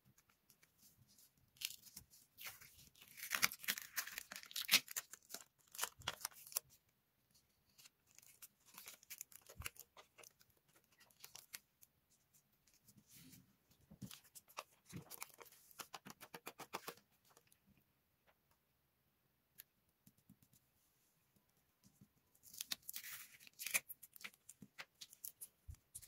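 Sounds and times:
paper rustling: 14.0s - 17.5s.

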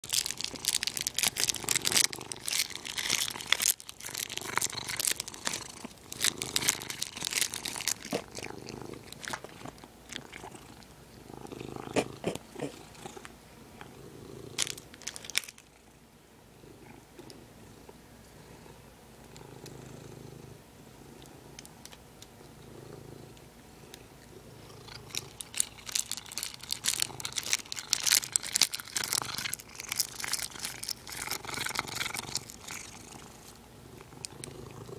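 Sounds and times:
plastic bag crinkling: 0.0s - 10.6s, 14.6s - 15.8s, 24.9s - 33.2s
cat purring: 0.2s - 21.6s, 22.4s - 34.9s.

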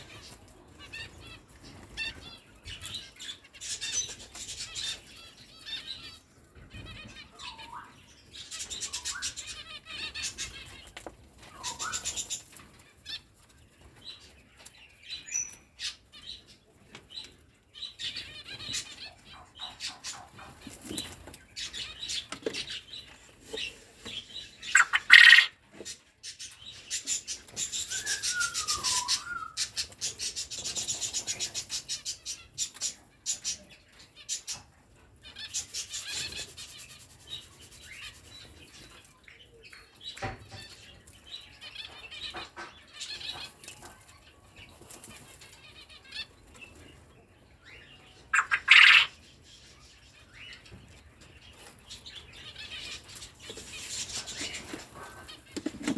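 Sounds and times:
bird chirps: 0.0s - 13.2s, 17.2s - 34.7s, 45.9s - 55.8s
loud bird calls: 0.0s - 13.2s, 17.9s - 33.7s, 47.6s - 49.7s.

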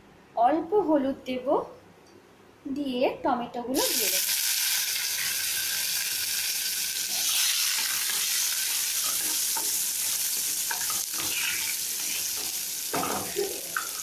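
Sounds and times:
tomatoes sizzling in hot oil: 3.8s - 14.0s.

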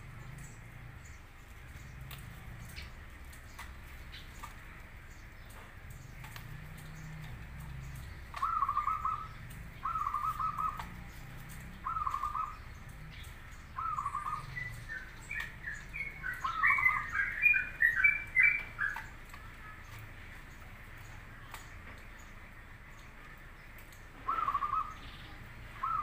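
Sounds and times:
high bird chirps: 7.9s - 20.0s, 24.2s - 26.0s
dove cooing: 8.3s - 12.6s, 13.2s - 19.1s, 24.2s - 25.0s, 25.8s - 26.0s.

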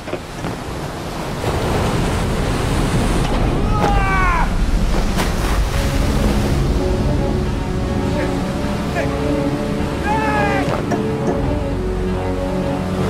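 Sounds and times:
heavy waves: 0.0s - 13.0s
wind: 0.0s - 13.0s
short falling cry: 3.6s - 4.6s
steady low tones: 4.5s - 13.0s.

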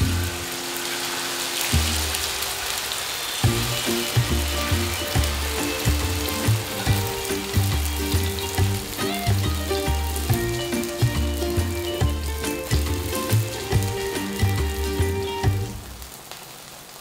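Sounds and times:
batter sizzling in hot oil: 0.0s - 17.0s
background music with bass beat: 3.4s - 15.8s.

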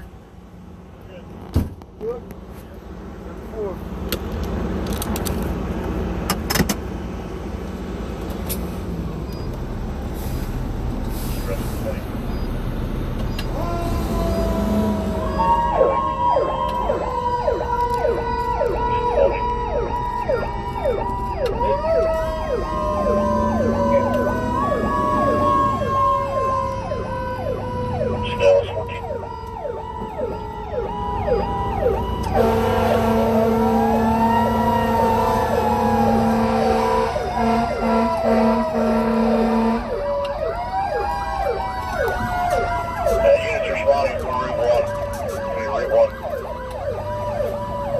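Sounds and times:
vehicle engine rumble: 0.0s - 47.9s
wailing siren: 13.3s - 47.9s
siren yelp: 13.4s - 47.9s
horn blasts: 22.8s - 25.5s, 32.2s - 40.0s.

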